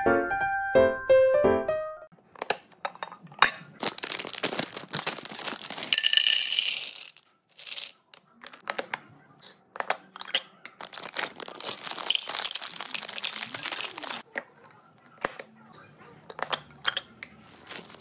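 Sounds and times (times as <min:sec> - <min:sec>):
snack packaging crinkling: 0:03.7 - 0:08.6, 0:10.2 - 0:14.3, 0:17.4 - 0:18.0
candy pouring into plastic container: 0:03.8 - 0:08.0, 0:10.8 - 0:14.2, 0:17.5 - 0:18.0.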